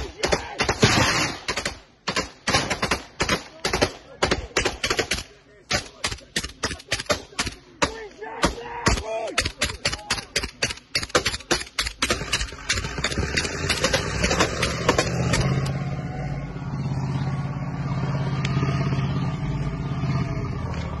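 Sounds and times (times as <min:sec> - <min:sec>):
rifle shots: 0:00.0 - 0:08.0, 0:08.9 - 0:15.7.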